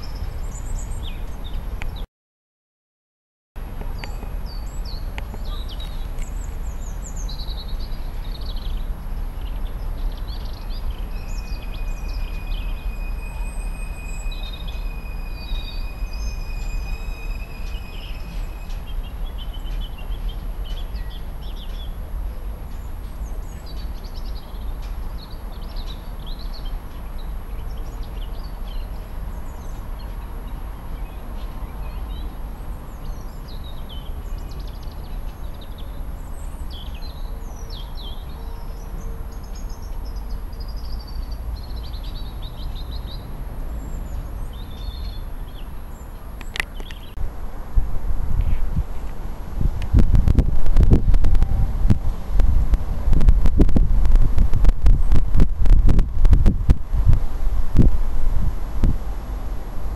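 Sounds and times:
birds chirping: 0.0s - 2.0s, 3.9s - 22.0s, 22.7s - 47.2s
freight train rumbling: 3.6s - 25.5s, 47.0s - 59.9s.

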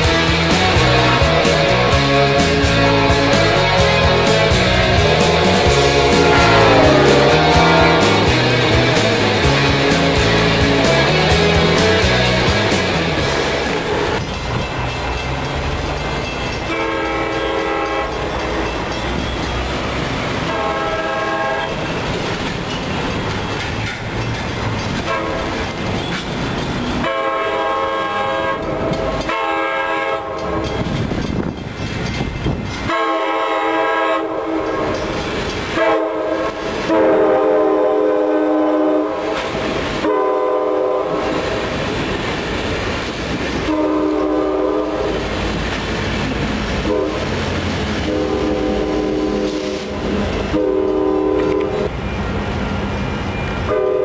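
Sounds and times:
train rumbling and clacking: 0.0s - 54.0s
train horn blasts: 2.2s - 11.1s, 16.7s - 18.7s, 20.4s - 21.8s, 25.0s - 25.6s, 27.0s - 30.9s, 32.8s - 35.1s, 35.7s - 41.7s, 43.6s - 45.3s, 46.8s - 47.4s, 48.0s - 51.9s, 53.6s - 54.0s.

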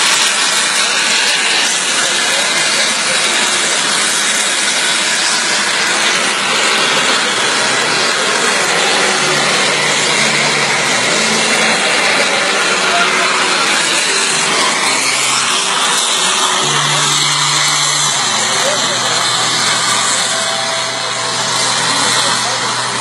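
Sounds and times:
aircraft engine rushing: 0.0s - 23.0s.

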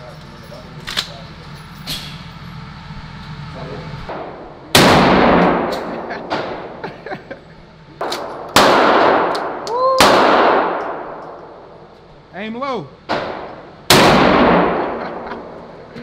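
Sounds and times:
shotgun blasts with echo: 4.1s - 6.8s, 8.0s - 11.3s, 13.1s - 15.2s.

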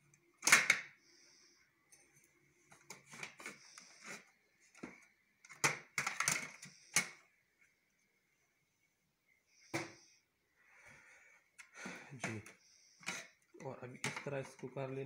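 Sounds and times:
plastic parts clicking and scraping: 1.9s - 7.2s, 12.2s - 15.0s.

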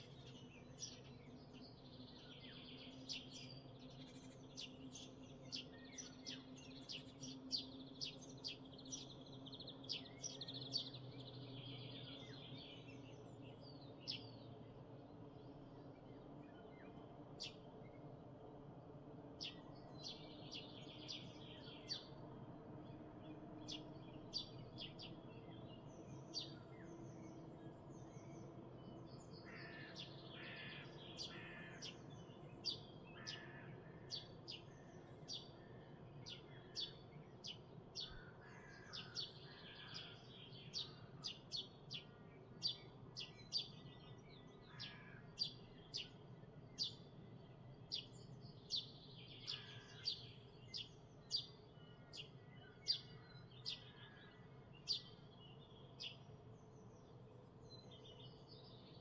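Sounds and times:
songbirds chirping: 0.0s - 59.0s
birds warbling: 28.9s - 37.0s, 43.2s - 47.1s, 48.0s - 56.0s.

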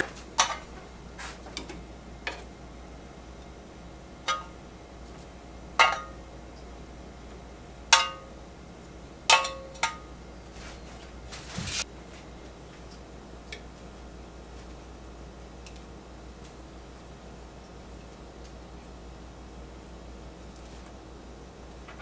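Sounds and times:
metal tongs clinking on frying pan: 5.8s - 6.2s, 7.9s - 8.3s, 9.3s - 10.1s.

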